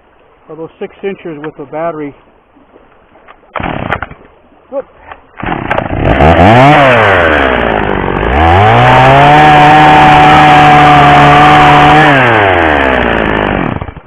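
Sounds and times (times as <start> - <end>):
chainsaw revving: 3.6 - 4.1, 5.4 - 14.0.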